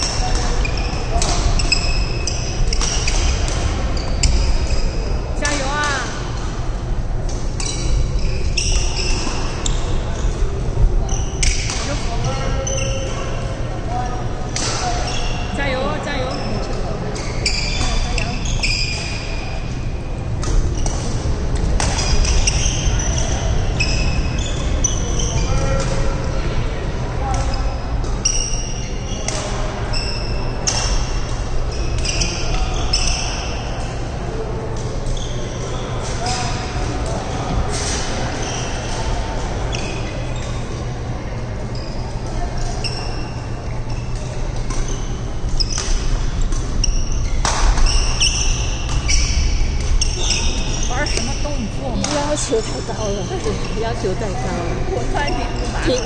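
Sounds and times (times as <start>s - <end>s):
sneakers squeaking on wooden floor: 0.0s - 6.4s, 7.6s - 19.9s, 21.9s - 25.8s, 41.6s - 56.0s
steady low hum: 0.0s - 56.0s.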